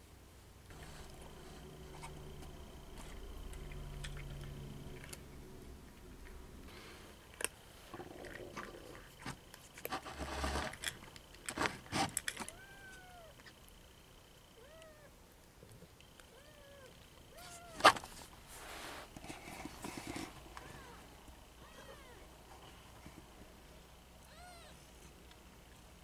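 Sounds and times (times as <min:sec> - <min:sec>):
low steady hum: 0:00.0 - 0:26.0
noisy bursts: 0:00.7 - 0:10.8
cat eating from plastic bowl: 0:00.7 - 0:12.4
cat meow: 0:12.5 - 0:13.4, 0:14.6 - 0:15.1, 0:16.3 - 0:17.9, 0:21.6 - 0:22.2, 0:24.2 - 0:24.8.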